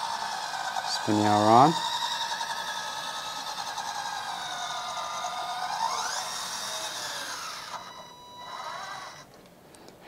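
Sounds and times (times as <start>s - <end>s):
hydraulic pump whining: 0.0s - 9.3s.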